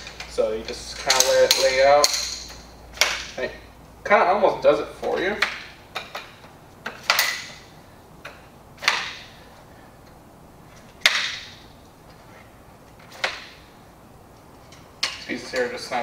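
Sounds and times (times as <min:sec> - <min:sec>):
chair poles snapping into sockets: 0:00.0 - 0:03.4, 0:05.0 - 0:09.4, 0:10.7 - 0:11.7, 0:12.9 - 0:13.7, 0:14.7 - 0:15.8.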